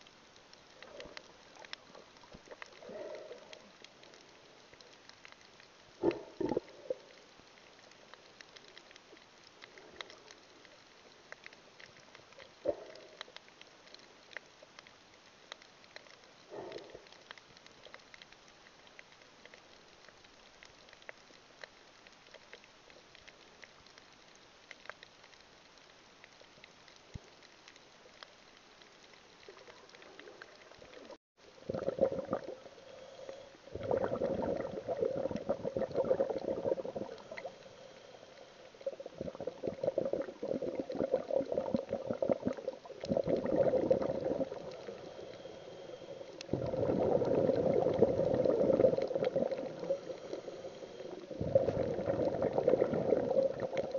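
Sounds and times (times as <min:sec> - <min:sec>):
water bubbling and gurgling: 0:00.0 - 0:10.5, 0:29.4 - 0:53.9
faint underwater clicks: 0:00.0 - 0:53.9.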